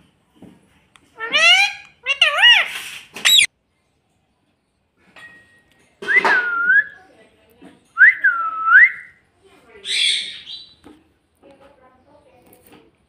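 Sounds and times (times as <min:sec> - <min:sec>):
parakeet calling and whistling: 0:01.2 - 0:03.5, 0:09.8 - 0:10.8.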